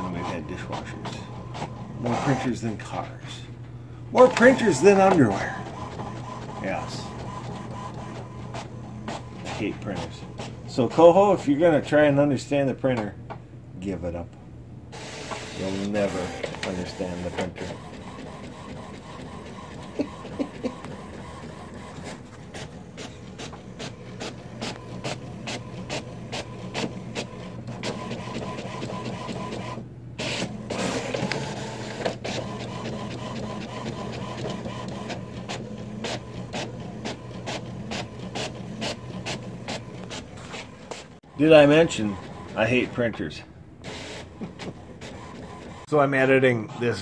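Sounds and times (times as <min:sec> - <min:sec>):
printer carriage shuttling: 0:04.2 - 0:06.5
quick printer clicks: 0:04.2 - 0:10.6, 0:15.0 - 0:41.0.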